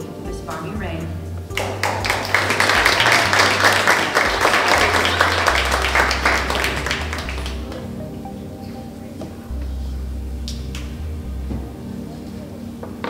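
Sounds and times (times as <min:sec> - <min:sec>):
soft background music: 0:00.0 - 0:13.0
audience clapping: 0:01.5 - 0:07.9.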